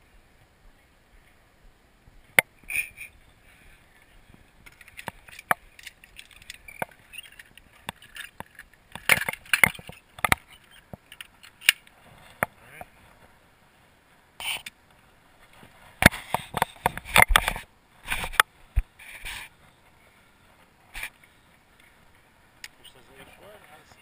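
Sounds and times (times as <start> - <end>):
metal carabiners clinking: 4.7 - 11.8.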